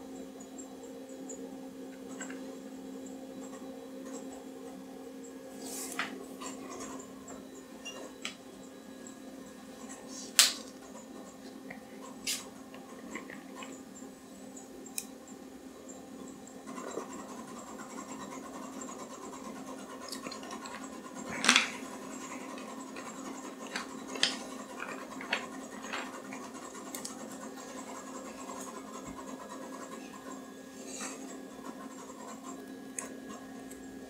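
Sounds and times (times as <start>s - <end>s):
computer low hum: 0.0s - 34.0s
disk drive clicks and seeks: 10.4s - 34.0s.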